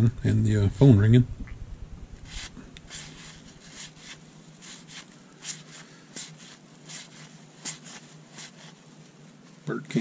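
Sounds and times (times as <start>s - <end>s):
cardboard cards sliding together: 2.2s - 8.8s.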